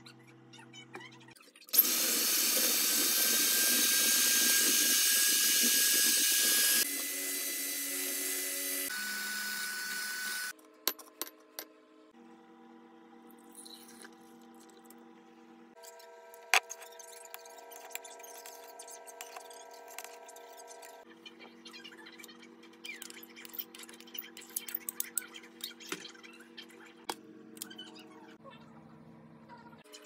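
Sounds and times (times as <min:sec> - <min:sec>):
electric hand mixer whining: 0:01.7 - 0:10.5.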